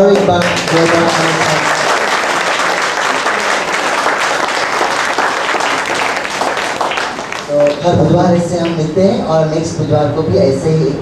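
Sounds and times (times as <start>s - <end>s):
audience clapping: 0.0s - 8.8s.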